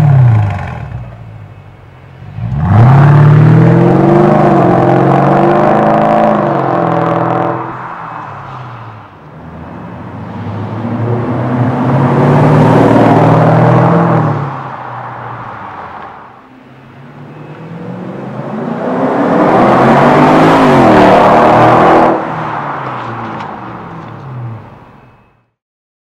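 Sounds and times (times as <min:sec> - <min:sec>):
car engine accelerating: 0:02.2 - 0:07.7, 0:09.3 - 0:14.7, 0:17.0 - 0:24.2
car passing fast: 0:02.4 - 0:16.3.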